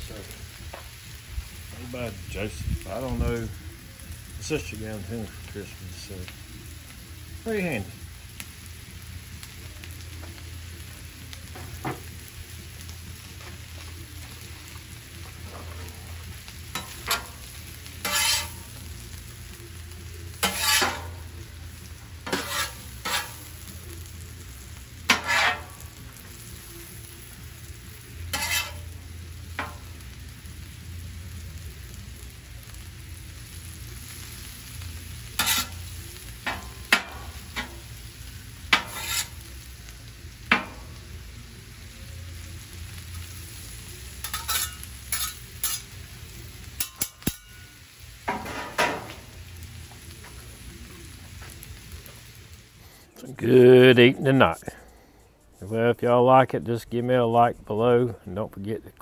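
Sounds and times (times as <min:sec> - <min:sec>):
cabbage sizzling on griddle: 0:00.0 - 0:54.6
metal spatula scraping griddle: 0:15.3 - 0:18.9, 0:20.2 - 0:24.2, 0:24.9 - 0:26.5, 0:28.2 - 0:29.9, 0:35.2 - 0:37.9, 0:38.6 - 0:39.7, 0:44.0 - 0:46.0, 0:46.6 - 0:49.3.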